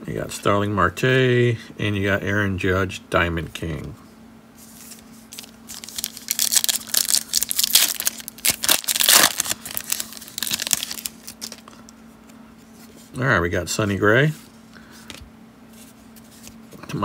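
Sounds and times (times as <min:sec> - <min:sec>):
foil wrapper crinkling and tearing: 0:05.3 - 0:11.8.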